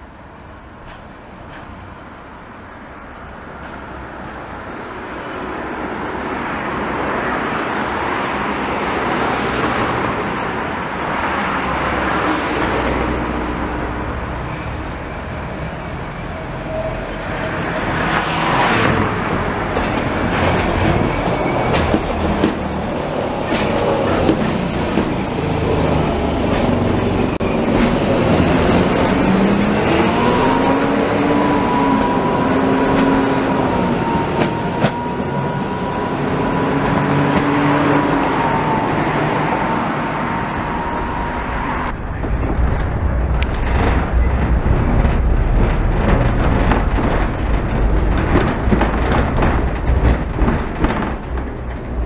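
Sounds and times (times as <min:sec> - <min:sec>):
railcar rolling on track: 0:00.0 - 0:52.0
rising whine: 0:27.4 - 0:48.0.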